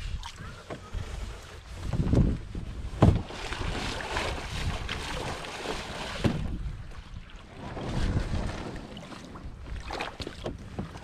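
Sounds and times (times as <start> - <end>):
wind buffeting microphone: 0.0 - 11.0
water splashing in shallows: 2.8 - 11.0
dull knocks: 3.0 - 3.3.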